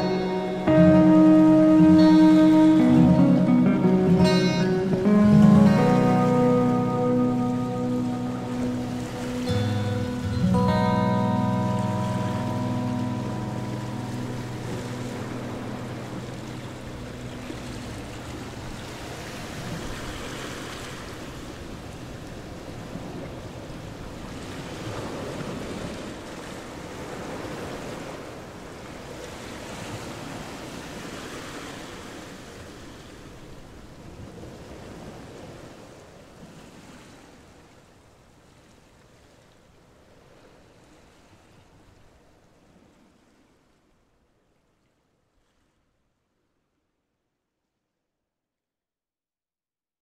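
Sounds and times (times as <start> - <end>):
ambient music: 0.0 - 19.4
ocean surf: 0.0 - 43.6.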